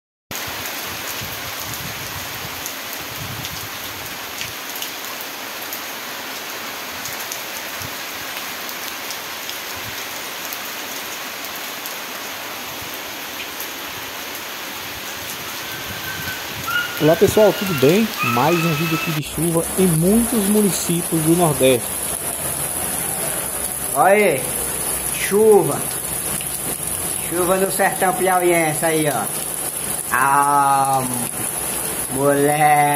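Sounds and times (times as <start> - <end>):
steady rain hiss: 0.4 - 32.9.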